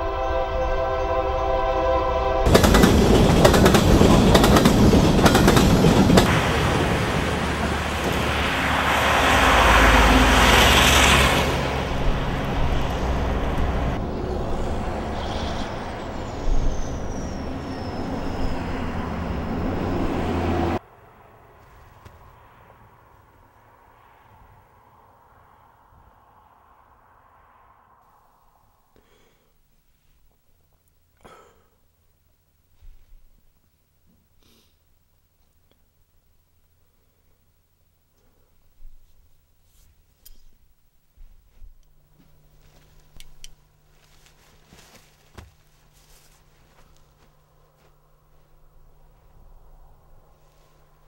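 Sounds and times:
train horn: 0.0s - 3.3s
low steady rushing noise: 0.0s - 17.1s
train passing with wheel clatter: 0.0s - 24.8s, 41.9s - 51.0s.

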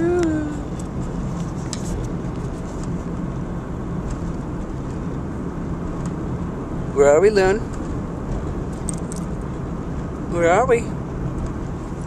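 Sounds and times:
road and engine rumble inside car: 0.0s - 12.0s.

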